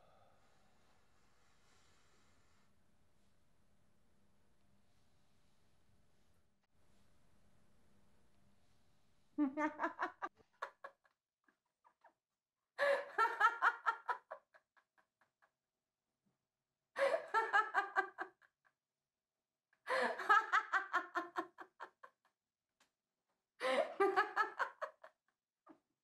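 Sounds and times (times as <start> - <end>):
woman laughing hard: 9.4 - 10.9, 19.9 - 21.8.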